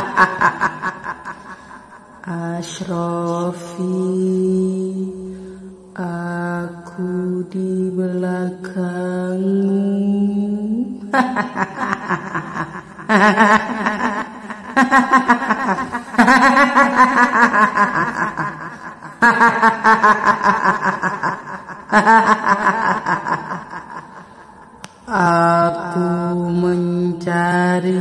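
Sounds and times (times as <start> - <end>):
woman speaking slowly: 2.2 - 11.1, 25.1 - 28.0.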